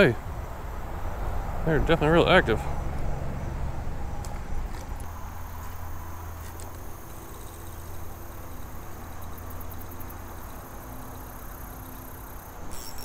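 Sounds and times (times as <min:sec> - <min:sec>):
fishing reel whirring: 0:07.1 - 0:13.0.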